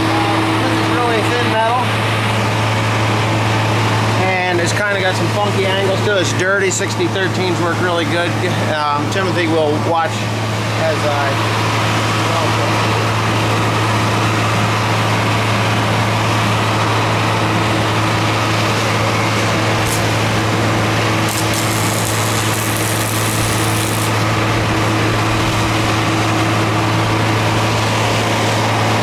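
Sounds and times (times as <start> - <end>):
loud steady engine hum: 0.0 - 29.0
welding arc crackling: 19.5 - 25.8.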